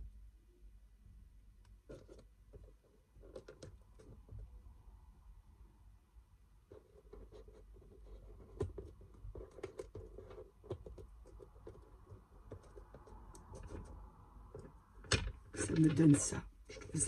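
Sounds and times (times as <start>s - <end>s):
fingertips tapping and scratching cardboard: 1.7s - 4.6s, 6.6s - 17.0s.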